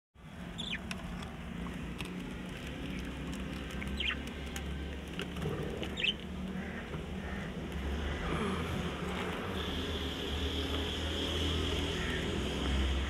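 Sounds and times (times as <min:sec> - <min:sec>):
budgerigars chirping: 0:00.6 - 0:00.8, 0:03.9 - 0:04.2, 0:05.9 - 0:06.7.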